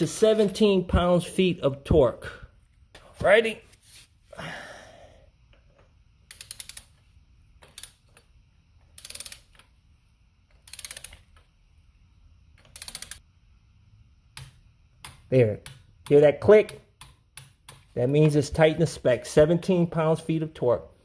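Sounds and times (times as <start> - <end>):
torque wrench ratchet clicking: 6.2 - 7.0, 7.6 - 9.7, 10.5 - 11.4, 12.6 - 13.2.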